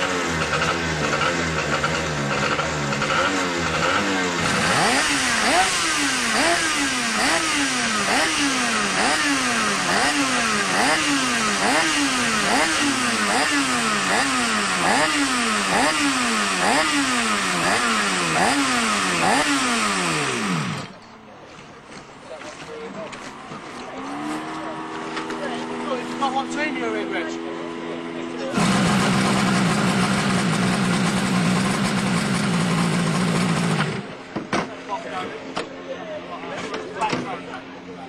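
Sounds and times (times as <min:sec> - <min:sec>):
outboard engine revving: 0:00.0 - 0:21.0, 0:28.5 - 0:34.1.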